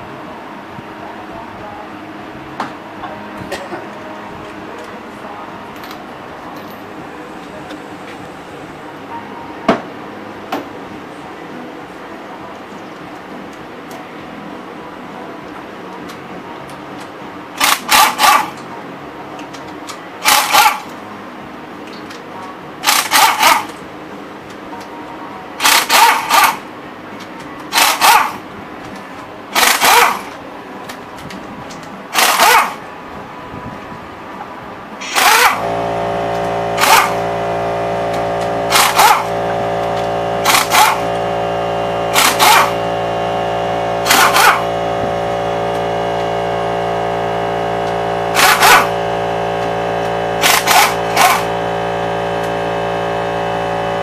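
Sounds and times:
steady machine hum: 0.0s - 19.4s, 32.0s - 54.0s
pneumatic impact wrench bursts: 17.6s - 18.6s, 20.2s - 20.9s, 22.8s - 23.8s, 25.6s - 26.6s, 27.7s - 28.4s, 29.6s - 30.4s, 32.1s - 32.8s, 35.0s - 54.0s.

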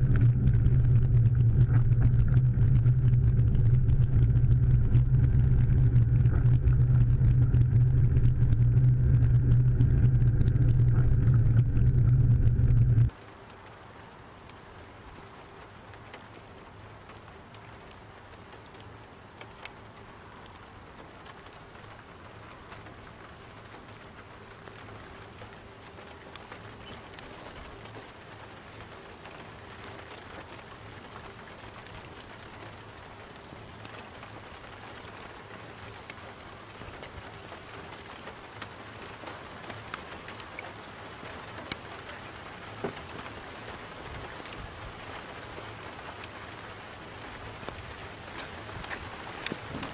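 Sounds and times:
drops ticking near microphone: 0.0s - 13.1s
rain pattering: 0.0s - 49.9s.

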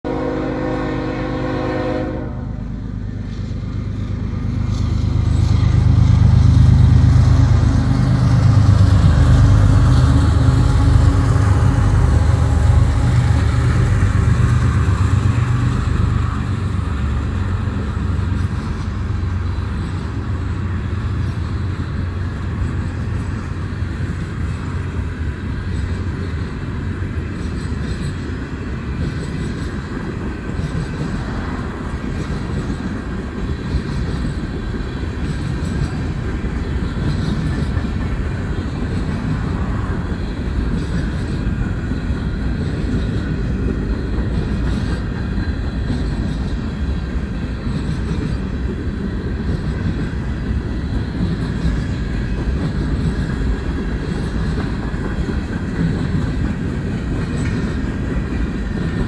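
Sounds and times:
train horn: 0.0s - 2.8s, 7.6s - 16.8s
diesel locomotive engines passing: 0.0s - 59.0s
freight cars rolling on rails: 0.1s - 59.0s.

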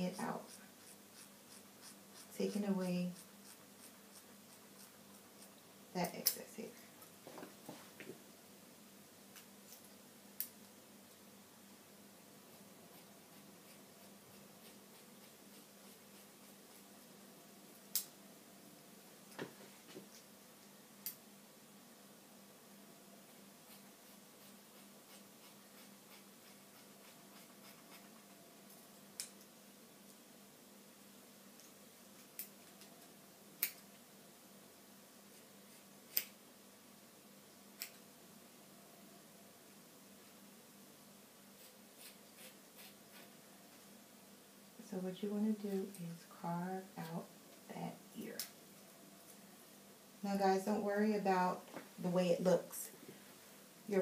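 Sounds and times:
shears snipping hair: 35.7s - 36.4s.

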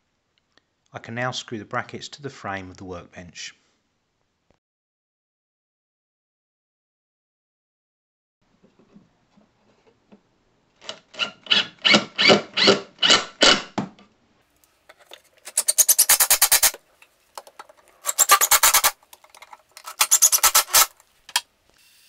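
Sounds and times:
cordless driver driving screws: 15.5s - 16.8s, 18.0s - 19.0s, 19.8s - 21.4s.

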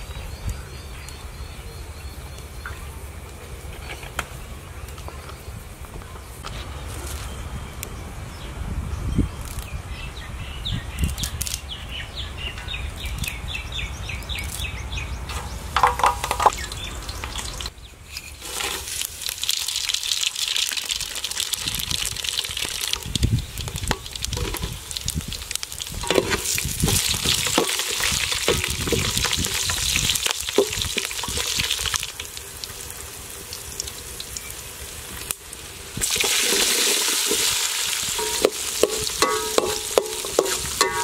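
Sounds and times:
spices sizzling in hot oil: 15.9s - 41.0s
metal spoon scraping pot: 26.0s - 29.1s, 38.2s - 41.0s.

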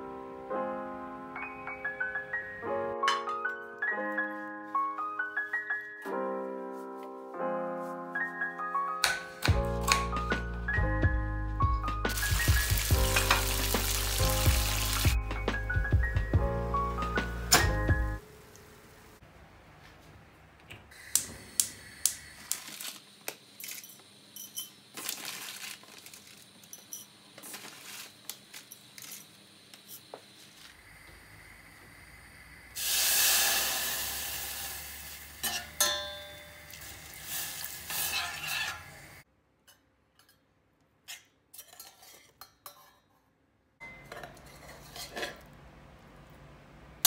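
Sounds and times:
loud sizzling hiss: 12.1s - 15.2s, 29.3s - 35.8s, 36.5s - 39.2s
pan and utensil clinks: 35.4s - 36.8s
stirring clinks: 35.4s - 36.9s.

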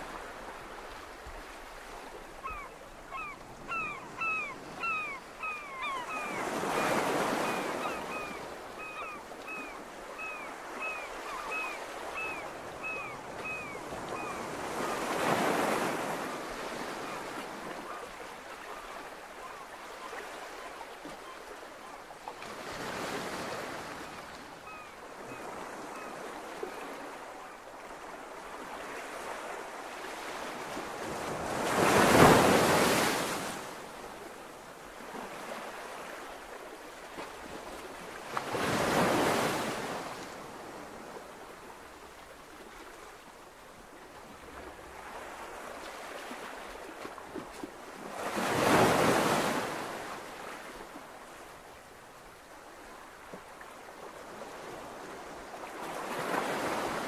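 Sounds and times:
waves breaking: 28.5s - 33.8s, 43.9s - 51.2s.

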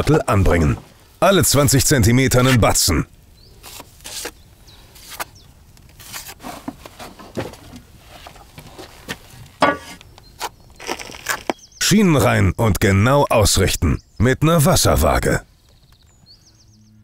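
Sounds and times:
trowel scraping mortar: 3.6s - 4.4s, 6.0s - 7.3s.

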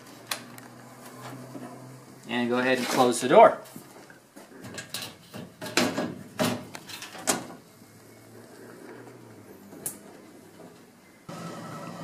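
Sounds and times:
sheet metal panel knocks and rattles: 4.8s - 7.5s.

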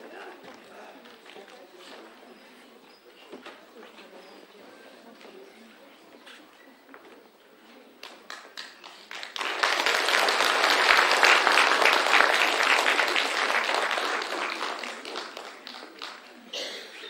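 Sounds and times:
audience applause: 8.6s - 16.4s.

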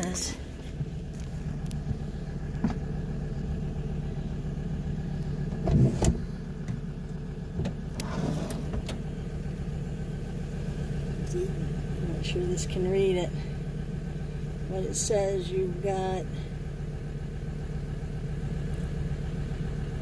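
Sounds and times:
van engine idling: 0.0s - 20.0s.

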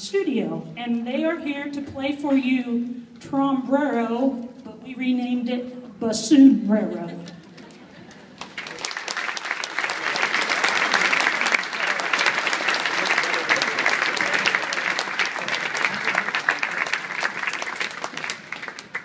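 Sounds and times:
audience applauding: 7.6s - 19.0s.

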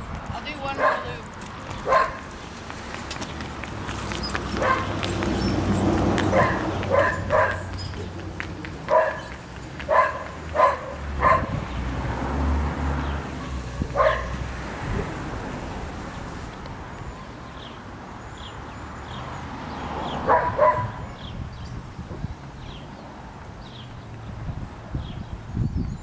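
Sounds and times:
hooves clopping on pavement: 0.0s - 17.8s, 22.1s - 26.0s
dog barking: 0.8s - 1.1s, 1.8s - 2.3s, 4.6s - 5.0s, 6.3s - 7.7s, 8.9s - 11.6s, 13.4s - 14.4s, 20.3s - 21.0s.

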